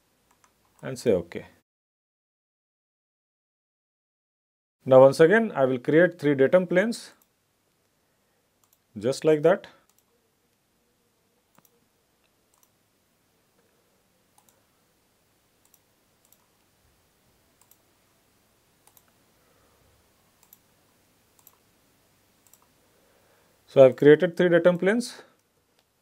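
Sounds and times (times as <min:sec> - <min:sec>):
faint computer mouse clicks: 0:09.8 - 0:10.2, 0:11.5 - 0:12.7, 0:14.4 - 0:14.6, 0:15.6 - 0:16.6, 0:17.6 - 0:17.8, 0:18.8 - 0:19.2, 0:20.4 - 0:20.6, 0:21.4 - 0:21.6, 0:22.4 - 0:22.7.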